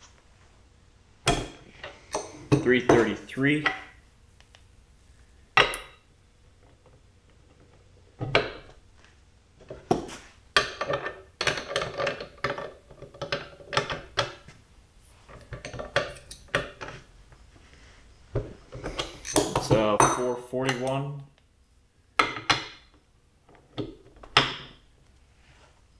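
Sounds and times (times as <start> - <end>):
metal tools clinking: 18.8 - 20.4.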